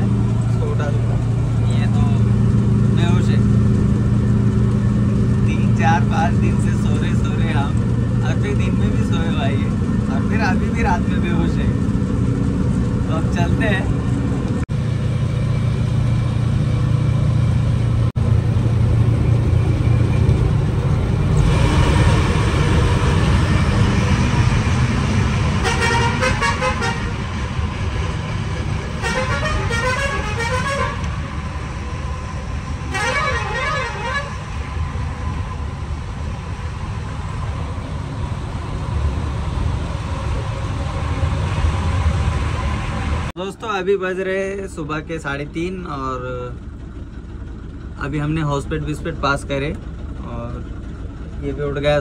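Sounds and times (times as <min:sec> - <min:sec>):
truck diesel engine running: 0:00.0 - 0:52.0
vehicle horn: 0:25.6 - 0:27.3, 0:29.0 - 0:31.2, 0:32.9 - 0:34.6.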